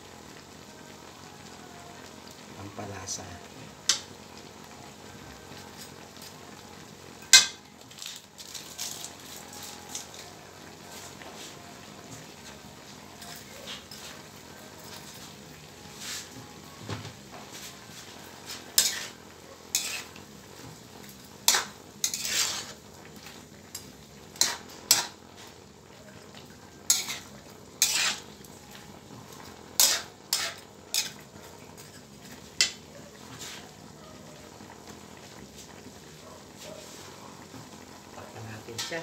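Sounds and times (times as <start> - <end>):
vegetables sizzling in oil: 0.0 - 39.0
metal spatula scraping a wok: 13.1 - 14.3, 17.4 - 20.2, 21.4 - 22.9, 23.7 - 25.6, 26.8 - 28.5, 29.3 - 33.8, 38.7 - 39.0.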